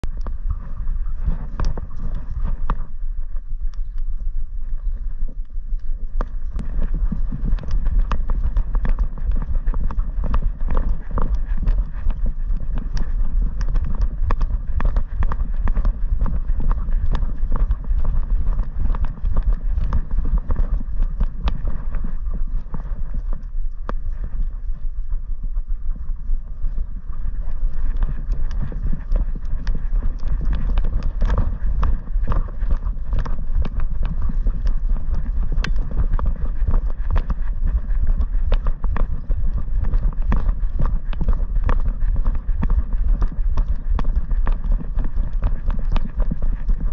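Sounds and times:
wind buffeting microphone: 0.0s - 46.9s
dog's running strides thumping: 27.4s - 46.9s.

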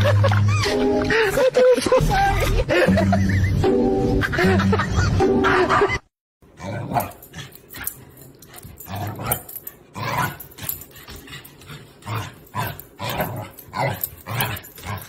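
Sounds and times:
music: 0.0s - 6.0s
dog barking and growling: 5.6s - 15.0s.

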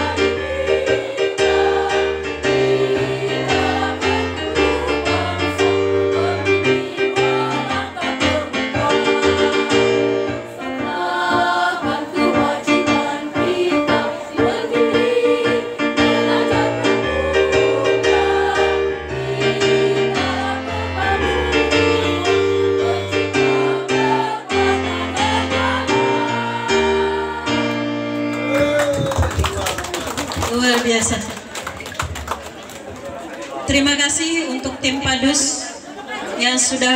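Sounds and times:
women's choir singing: 0.0s - 28.0s.

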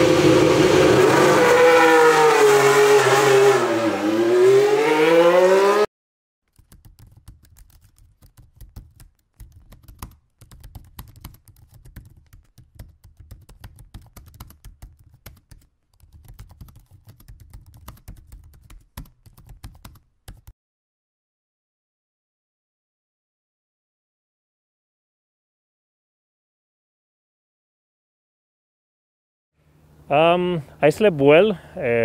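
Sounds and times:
keyboard typing clicks: 6.5s - 20.5s.

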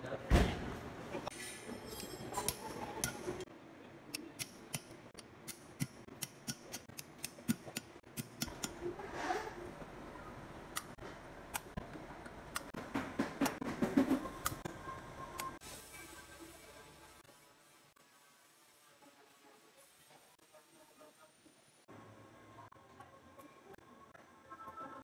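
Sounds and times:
sharp metallic clicks and taps: 4.1s - 8.8s, 12.5s - 12.8s.

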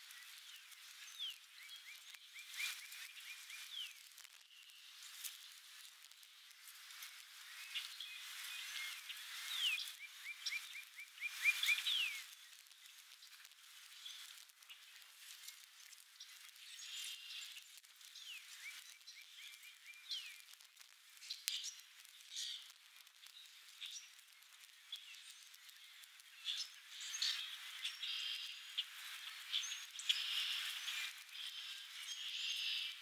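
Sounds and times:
songbirds chirping and singing: 0.1s - 4.9s, 7.4s - 12.6s, 16.2s - 20.5s, 21.2s - 33.0s.

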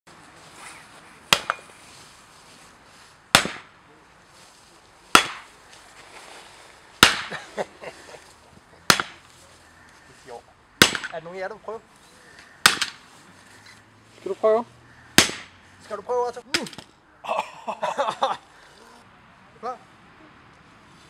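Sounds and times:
sharp cracks: 1.3s - 1.6s, 3.3s - 3.8s, 5.1s - 5.8s, 7.0s - 7.5s, 8.8s - 9.3s, 10.8s - 11.4s, 12.3s - 13.1s, 15.1s - 15.7s.

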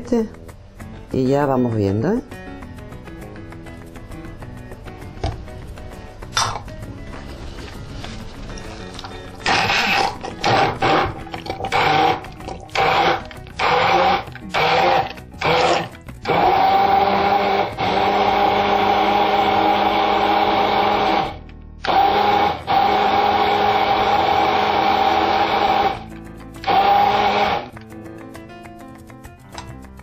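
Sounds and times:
immersion blender running: 9.4s - 27.7s.

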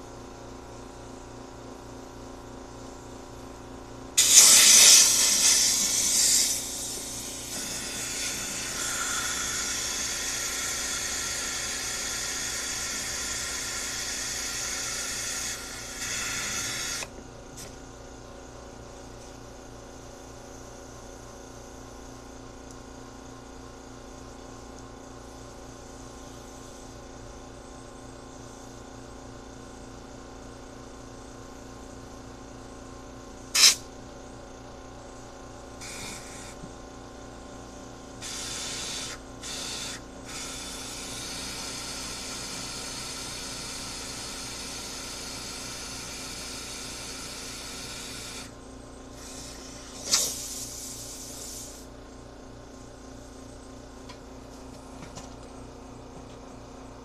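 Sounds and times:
pressurized spray hissing: 4.2s - 17.1s, 33.6s - 33.8s, 38.2s - 48.5s, 49.2s - 51.8s.

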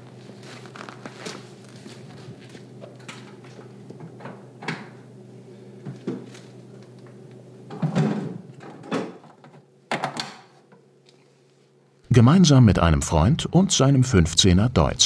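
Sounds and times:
steady low hum: 12.1s - 15.0s.

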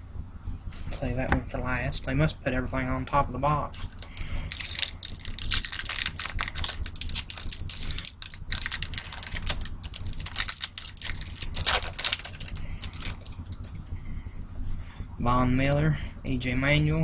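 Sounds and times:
foil wrapper crinkling: 3.7s - 13.8s.

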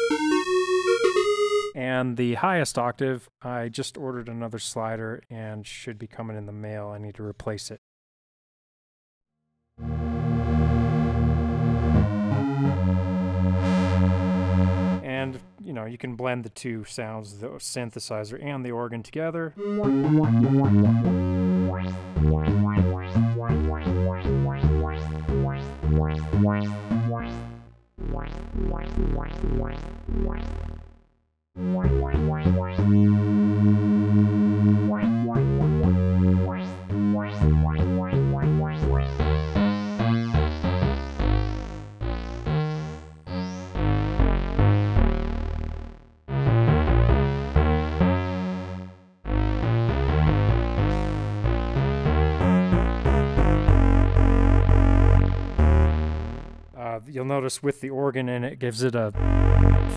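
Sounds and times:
synthesizer notes and chords: 0.0s - 1.8s, 9.8s - 15.6s, 19.5s - 57.0s, 59.1s - 59.9s.

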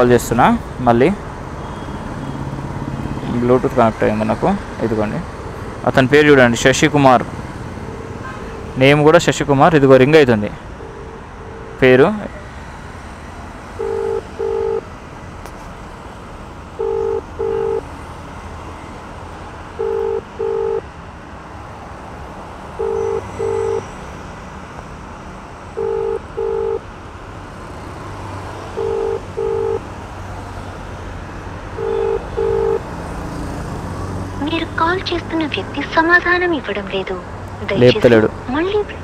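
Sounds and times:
street traffic: 0.0s - 39.0s
telephone ringback double beep: 22.8s - 23.9s.

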